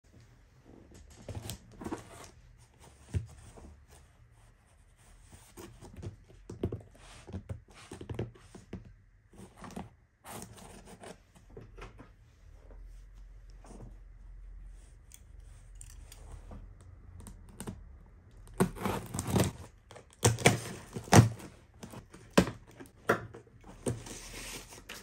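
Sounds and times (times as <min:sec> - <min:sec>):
cardboard box handled by hand: 0:18.5 - 0:25.0.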